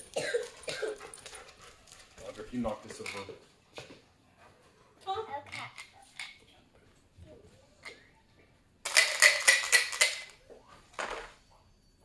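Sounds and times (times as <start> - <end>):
dice rattling in plastic cup: 8.9 - 10.3
dice clattering into box lid: 8.9 - 10.4.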